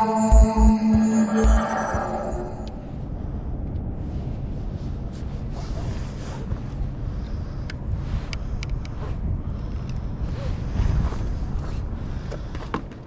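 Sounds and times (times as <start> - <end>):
electronic intro music: 0.0 - 3.0
wind buffeting microphone: 3.0 - 13.0.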